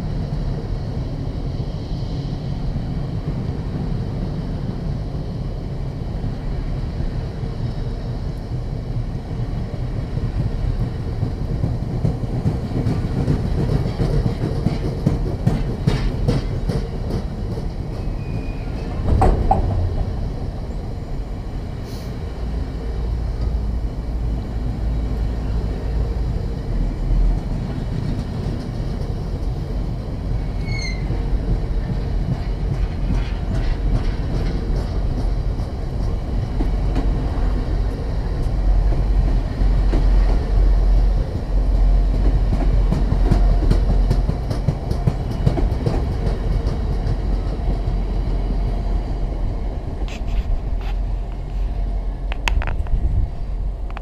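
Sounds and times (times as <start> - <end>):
freight train rolling past: 0.0 - 54.0
train wheels clicking: 10.0 - 20.3, 26.3 - 54.0.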